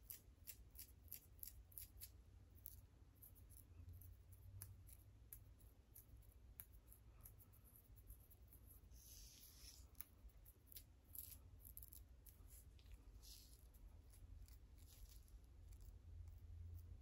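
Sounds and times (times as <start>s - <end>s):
fingernails scratching scalp: 7.2s - 16.0s.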